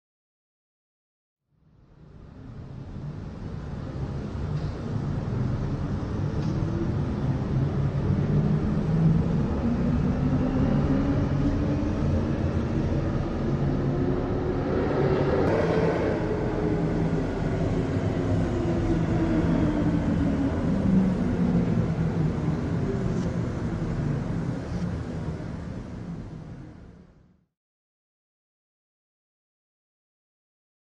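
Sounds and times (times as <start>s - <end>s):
spacecraft engine rumble: 2.8s - 26.6s.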